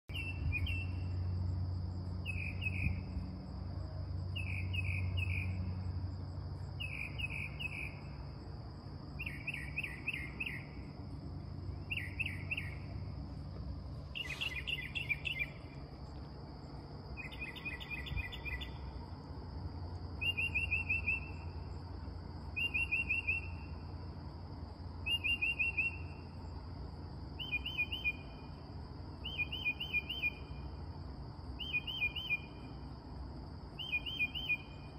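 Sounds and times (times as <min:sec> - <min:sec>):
low hum: 0:00.0 - 0:34.9
high insect drone: 0:00.1 - 0:34.9
mockingbird singing: 0:11.9 - 0:12.8, 0:14.1 - 0:15.7, 0:17.2 - 0:18.8, 0:20.2 - 0:21.4, 0:22.6 - 0:23.6, 0:27.4 - 0:28.2, 0:31.6 - 0:32.5, 0:33.8 - 0:34.8.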